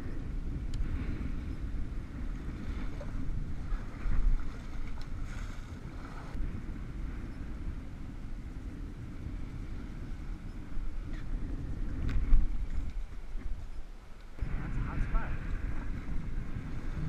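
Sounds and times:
wind rumbling on microphone: 0:00.0 - 0:17.0
sea water sloshing around boat: 0:02.2 - 0:06.4.

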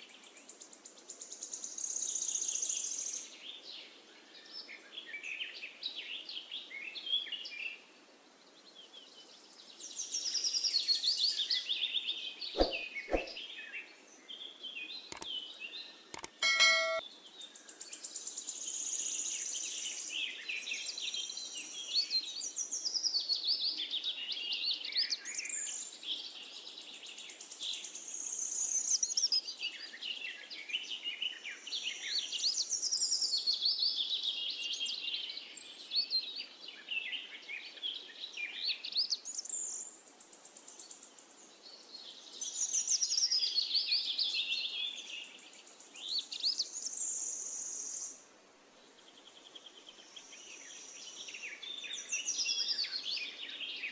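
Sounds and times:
small birds chirping: 0:00.0 - 0:53.9
sharp clicks: 0:15.1 - 0:15.3, 0:16.1 - 0:17.0
ringing ding: 0:16.4 - 0:17.0.

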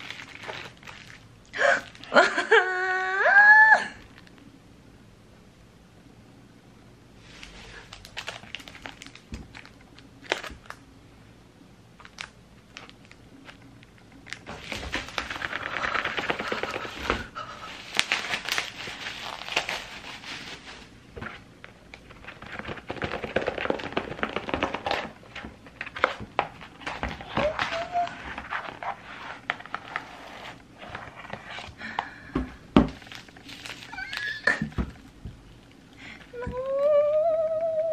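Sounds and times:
plastic packaging crinkling: 0:00.0 - 0:02.4, 0:07.3 - 0:10.8, 0:12.0 - 0:31.7, 0:32.8 - 0:36.4.

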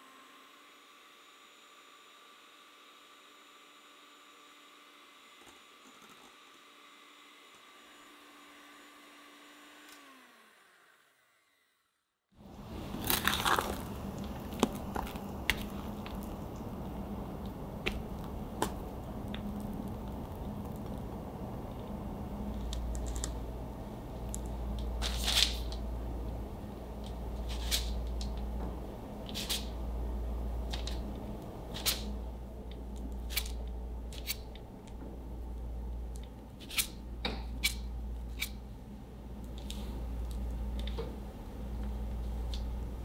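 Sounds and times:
steady low hum: 0:12.4 - 0:43.0.

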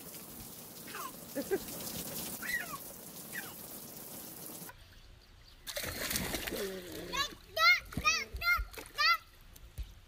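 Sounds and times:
rain dripping on a wet deck: 0:00.0 - 0:04.7
water splashing in a plastic pool: 0:00.0 - 0:09.4.

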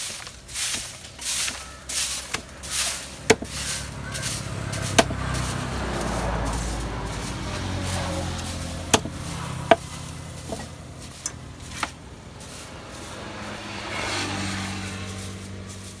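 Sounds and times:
machete chopping on wooden block: 0:03.3 - 0:03.6, 0:04.9 - 0:05.2, 0:08.9 - 0:10.7.

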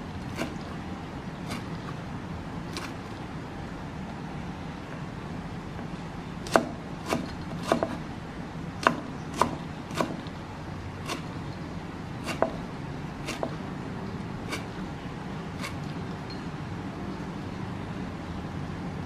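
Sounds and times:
cleaver chopping on wooden block: 0:06.5 - 0:08.0, 0:08.8 - 0:10.2, 0:11.0 - 0:11.3, 0:12.2 - 0:12.6, 0:13.2 - 0:13.6.

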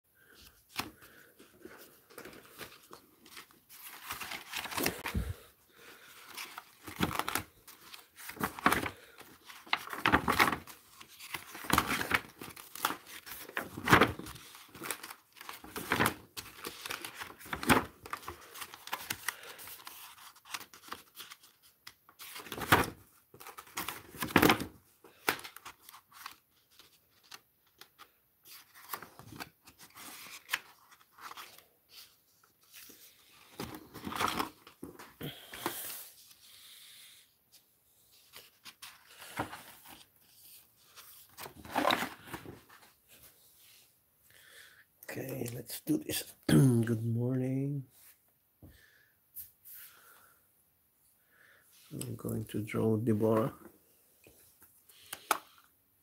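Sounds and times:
stiff paper sheets rustling: 0:00.2 - 0:36.8, 0:38.0 - 0:43.8.

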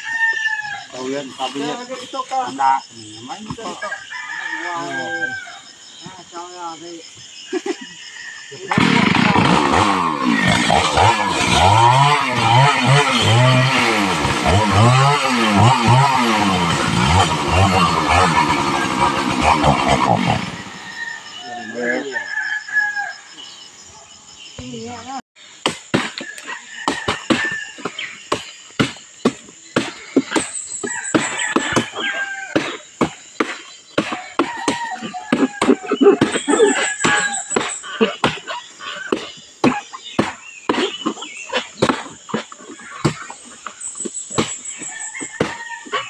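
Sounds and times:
small engine revving: 0:08.7 - 0:21.0
machete chopping palm trunk: 0:25.6 - 0:43.3, 0:44.0 - 0:46.0.

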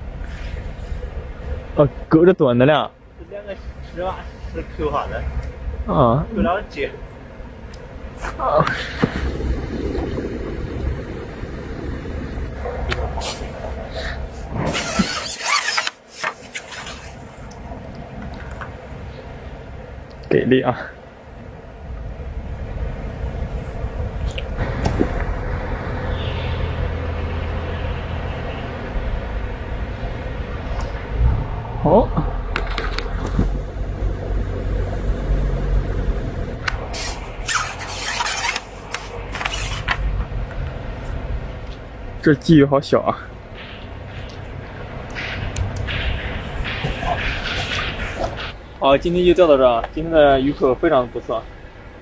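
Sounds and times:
wind rumble on microphone: 0:03.7 - 0:15.2, 0:21.3 - 0:42.1, 0:43.4 - 0:50.2.

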